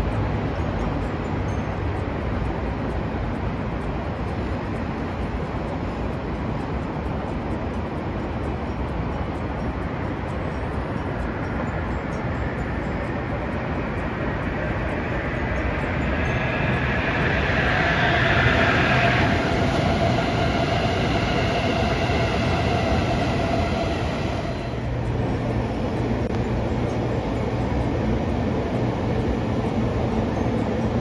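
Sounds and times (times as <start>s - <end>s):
train wheels rumbling on rail: 0.0s - 31.0s
faint whining tone: 7.0s - 31.0s.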